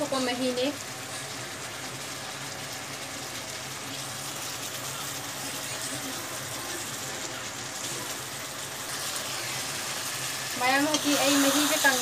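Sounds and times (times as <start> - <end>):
curry sizzling and bubbling: 0.0 - 12.0.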